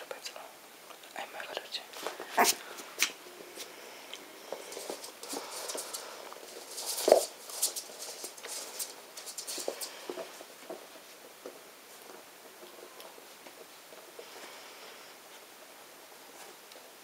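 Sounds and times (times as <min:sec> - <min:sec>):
puppy pattering on floor: 0:01.9 - 0:14.7.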